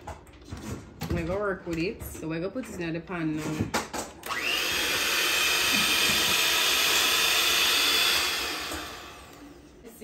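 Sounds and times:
stand mixer motor whirring: 4.2 - 9.7.

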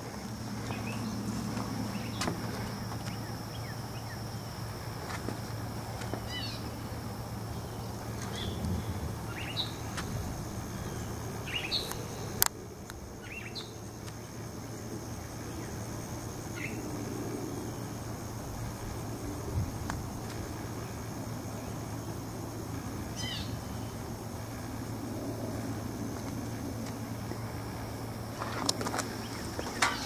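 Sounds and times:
high insect drone: 0.0 - 30.0
low steady hum: 0.0 - 30.0
bird chirps: 9.3 - 9.9, 10.8 - 12.2.

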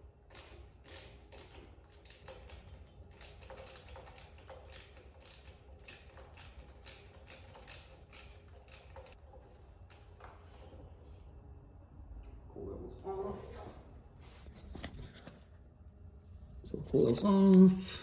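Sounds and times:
socket ratchet clicking: 0.3 - 9.2.

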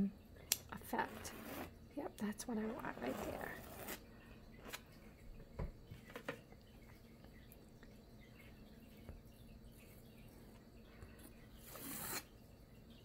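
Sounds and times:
palette knife scraping canvas: 1.0 - 1.7, 2.7 - 4.0, 11.6 - 12.3.

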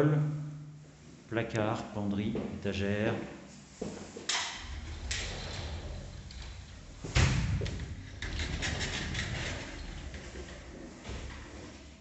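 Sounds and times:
sliding door thumping at track end: 4.3 - 11.5
sliding door rumbling on track: 4.4 - 11.5.

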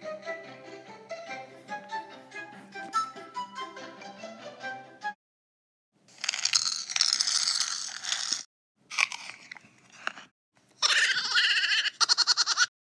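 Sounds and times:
crunching and chewing: 6.1 - 10.0.

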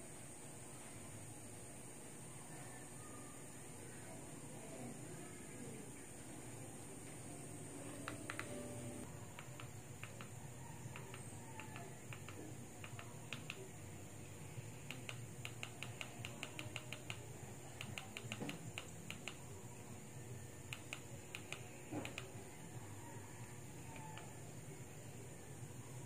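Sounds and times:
remote control button clicks: 8.0 - 8.6.

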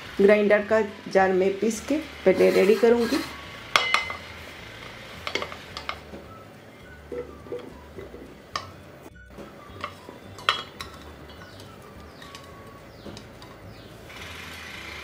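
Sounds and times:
vegetable pieces clinking on metal: 9.8 - 13.8.

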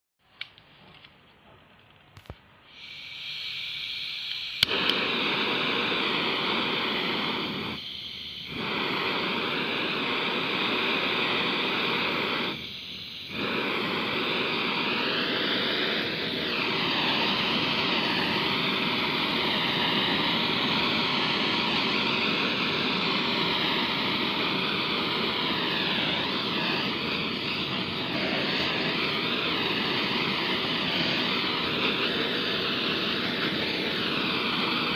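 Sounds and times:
gas hissing: 2.2 - 34.9
torch igniter click: 2.2 - 34.9
torch flame roaring: 2.8 - 34.9.

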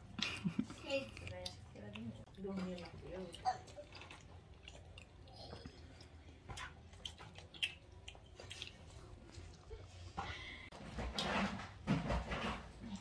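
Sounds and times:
chewing: 0.2 - 10.4.

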